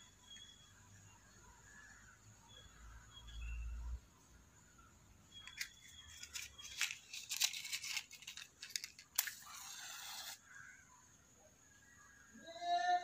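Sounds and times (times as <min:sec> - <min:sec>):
match being struck and flaring: 0:09.2 - 0:10.4.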